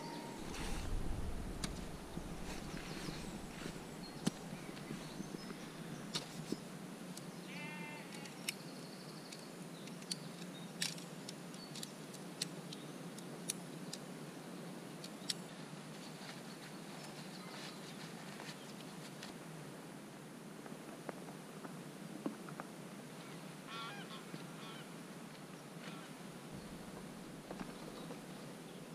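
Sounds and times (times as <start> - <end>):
background hiss: 0.0 - 10.4.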